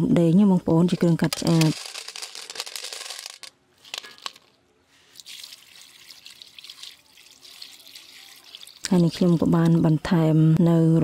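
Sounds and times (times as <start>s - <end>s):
snail shells rattling on metal: 1.2s - 4.5s
coconut water pouring: 5.1s - 9.4s.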